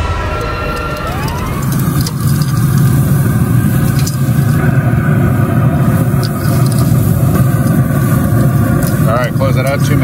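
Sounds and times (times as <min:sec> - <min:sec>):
grill burners rumbling: 0:00.0 - 0:10.0
metal tongs clicking on grill: 0:00.7 - 0:04.6, 0:06.2 - 0:10.0.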